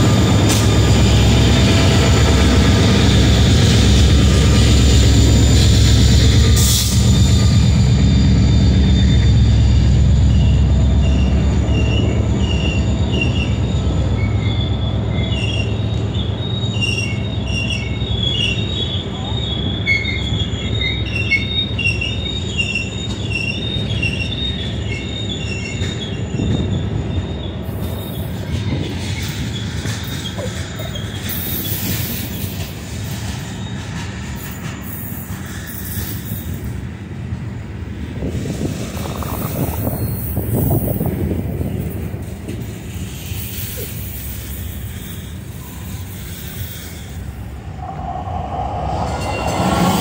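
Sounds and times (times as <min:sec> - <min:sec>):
train rumbling: 0:00.0 - 0:50.0
train wheels squealing: 0:00.0 - 0:50.0.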